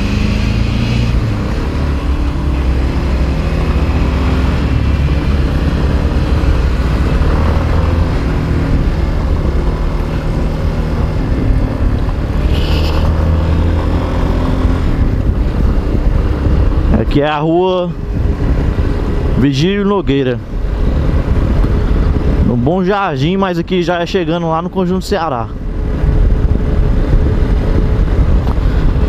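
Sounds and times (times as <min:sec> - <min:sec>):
rush of riding noise: 0:00.0 - 0:29.0.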